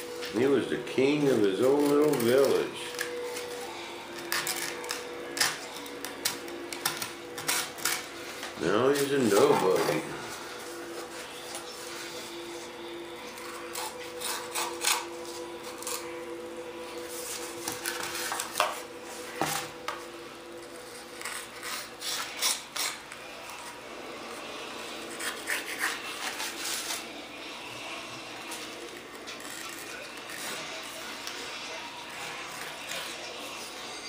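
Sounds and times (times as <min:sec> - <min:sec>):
razor blade scraping fiberglass: 0:13.7 - 0:15.1, 0:21.2 - 0:23.0, 0:25.1 - 0:27.0.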